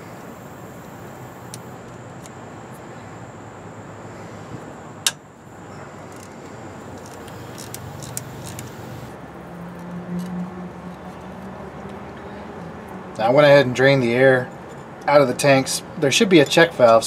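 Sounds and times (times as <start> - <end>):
steady background noise: 0.0 - 17.0
socket ratchet clicks: 7.0 - 8.9.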